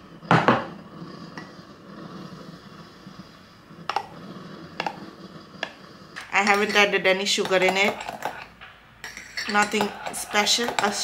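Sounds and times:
utensils clinking on ceramic cup: 6.2 - 11.0.

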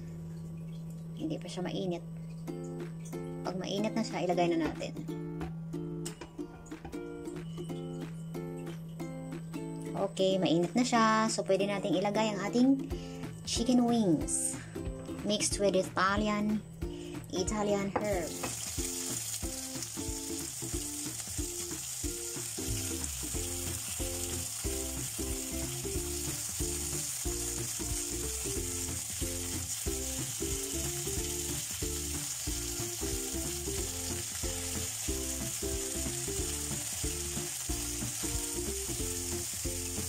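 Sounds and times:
chicken frying in hot oil: 18.1 - 40.0.

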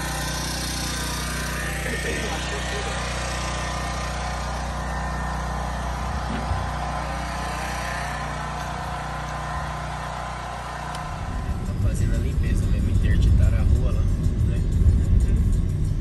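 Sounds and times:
large engine droning: 0.0 - 16.0.

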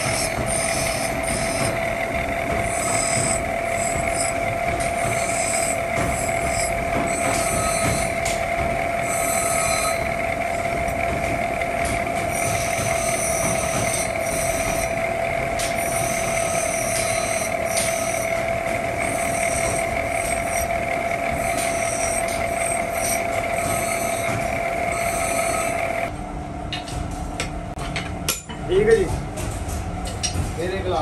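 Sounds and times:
steel grinding hiss: 0.0 - 2.0, 9.0 - 10.7, 12.3 - 15.1, 15.8 - 26.1
bench grinder whine: 0.0 - 26.1.

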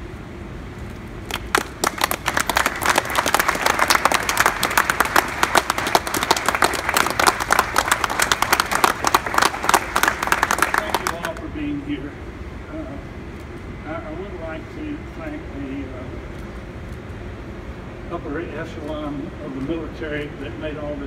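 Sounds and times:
audience applauding: 1.3 - 11.4.

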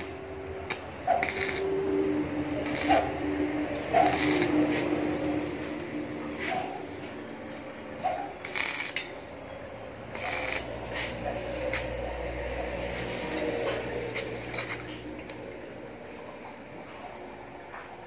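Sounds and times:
welding arc crackling: 0.0 - 6.2, 8.3 - 9.2, 9.9 - 15.4
low hum: 0.0 - 17.8.

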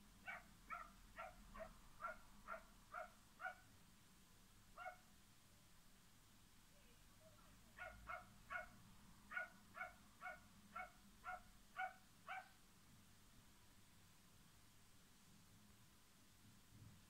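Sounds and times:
small dog yapping: 0.3 - 3.6, 7.8 - 8.7, 9.3 - 12.6.

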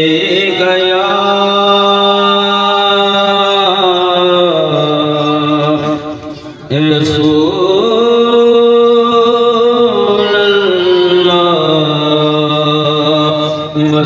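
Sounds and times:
man chanting devotional verse: 0.0 - 14.0.

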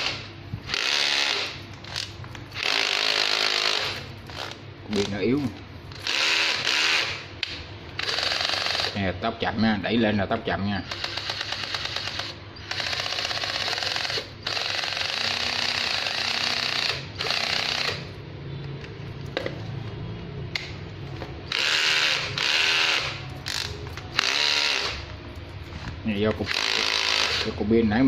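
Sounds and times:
cordless drill running: 0.0 - 5.2, 6.0 - 7.3, 8.0 - 9.0, 10.9 - 18.1, 21.5 - 25.0, 26.5 - 27.6.

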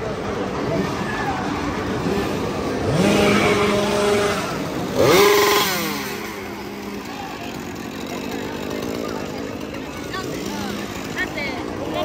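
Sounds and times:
chainsaw engine revving: 0.4 - 12.0.

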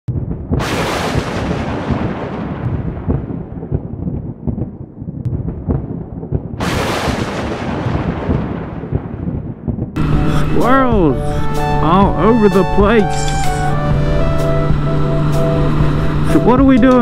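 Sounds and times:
sharp thunderclap: 0.1 - 10.1
thunder rumbling: 0.1 - 12.8.

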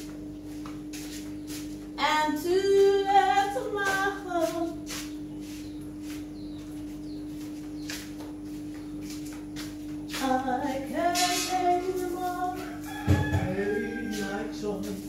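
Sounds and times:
steady low hum: 0.0 - 15.0
woman singing: 2.0 - 4.8, 10.2 - 15.0.

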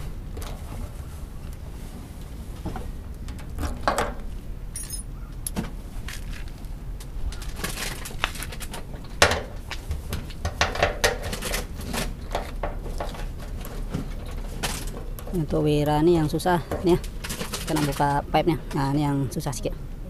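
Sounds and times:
light clicks and metallic clinks: 4.7 - 5.6.

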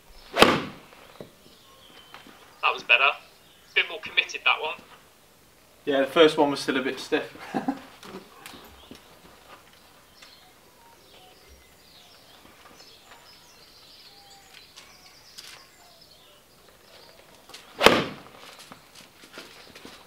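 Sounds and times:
faint birdsong: 0.0 - 20.0
golf club striking ball: 0.4 - 0.8, 17.8 - 18.3.

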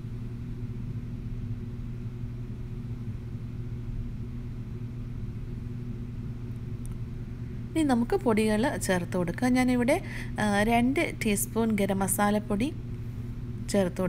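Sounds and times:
steady low hum: 0.0 - 14.0
faint noisy haze: 6.8 - 14.0.

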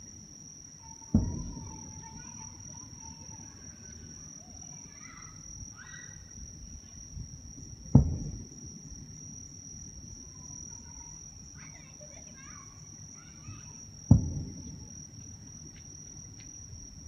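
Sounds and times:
high-pitched insect trill: 0.0 - 17.0
firework boom: 1.1 - 2.2, 7.9 - 9.2, 14.1 - 15.0.

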